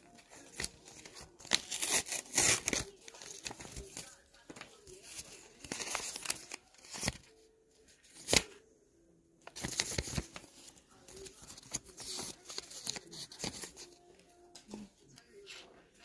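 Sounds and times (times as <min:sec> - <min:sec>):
paper rustling and crinkling: 0:00.0 - 0:08.6, 0:09.4 - 0:16.0
sharp paper snap: 0:01.4 - 0:03.8, 0:08.2 - 0:08.5.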